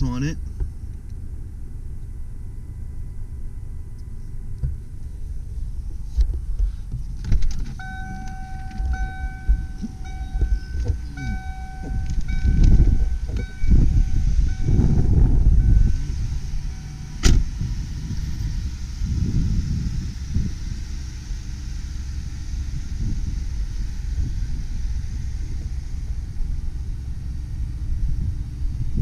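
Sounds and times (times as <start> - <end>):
low rumble: 0.0 - 29.0
electronic warning chime: 7.8 - 17.2.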